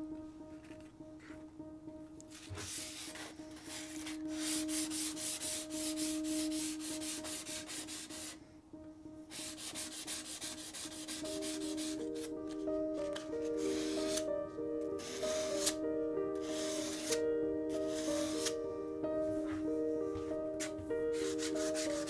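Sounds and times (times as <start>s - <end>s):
sandpaper scrubbing steel blade: 15.0s - 15.8s, 16.4s - 17.2s, 21.2s - 22.0s.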